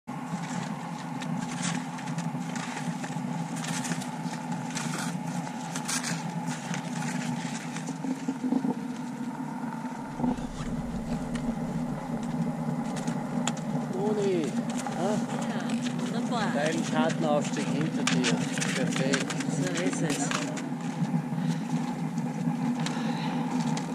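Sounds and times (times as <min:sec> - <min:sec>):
steady rushing noise: 0:09.6 - 0:16.3.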